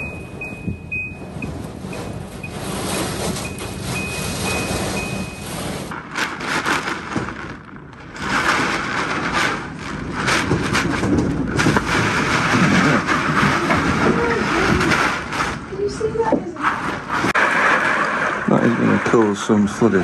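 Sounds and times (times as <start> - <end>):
wind buffeting microphone: 0.0 - 19.1
heavy rain: 0.0 - 20.0.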